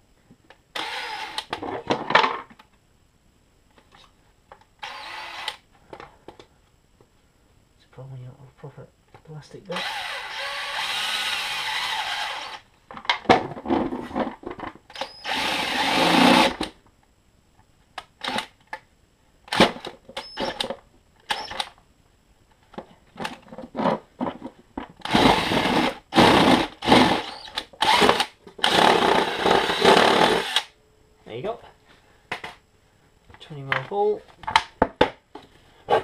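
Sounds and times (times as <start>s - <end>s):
cordless drill boring plastic: 0.7s - 1.6s, 4.8s - 5.6s, 9.7s - 12.6s, 14.9s - 16.7s, 18.2s - 18.5s, 25.0s - 30.7s.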